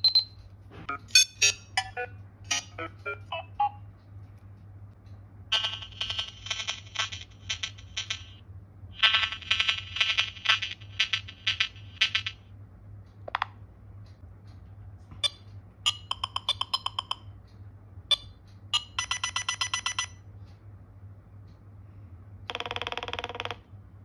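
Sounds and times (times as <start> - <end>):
rapid bleeps: 0.0 - 3.8, 18.1 - 20.2.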